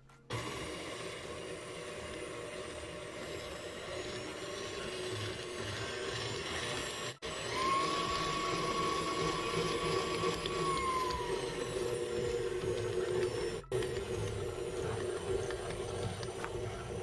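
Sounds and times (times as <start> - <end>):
electric stand mixer whining: 0.0 - 17.0.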